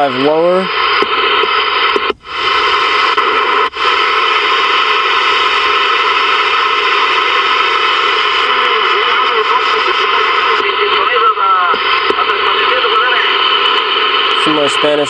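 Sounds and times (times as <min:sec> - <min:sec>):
radio static and hiss: 0:00.0 - 0:15.0.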